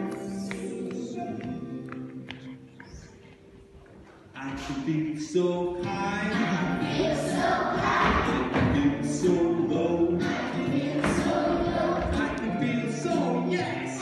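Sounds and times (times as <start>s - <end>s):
music accompaniment: 0.0s - 14.0s
children singing: 6.3s - 14.0s.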